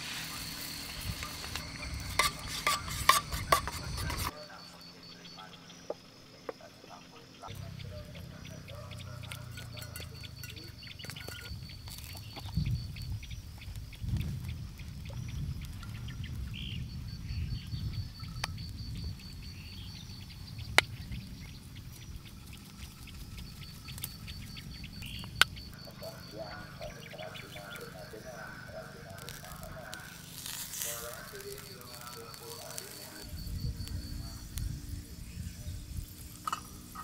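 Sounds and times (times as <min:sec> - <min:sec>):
birds chirping: 0:00.0 - 0:37.0
insects chirping: 0:00.0 - 0:37.0
metal cup and tongs clinking: 0:01.2 - 0:04.3, 0:09.2 - 0:11.6, 0:36.4 - 0:37.0.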